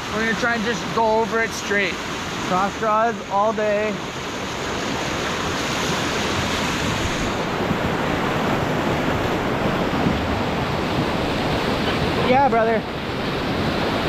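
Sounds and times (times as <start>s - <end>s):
whitewater rushing over rocks: 0.0s - 14.0s
wind on microphone: 4.2s - 14.0s.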